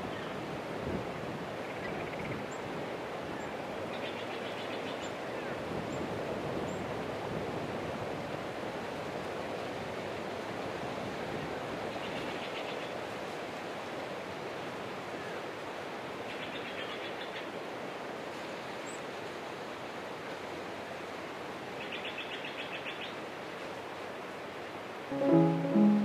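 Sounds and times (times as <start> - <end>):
wind in pine trees: 0.0 - 26.0.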